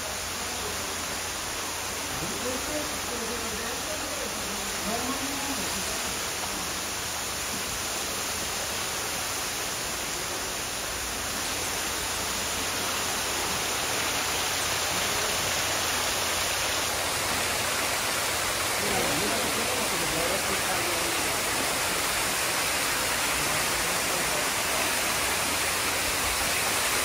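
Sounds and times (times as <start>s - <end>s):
waterfall rushing: 0.0s - 27.0s
faint voices: 9.9s - 26.6s.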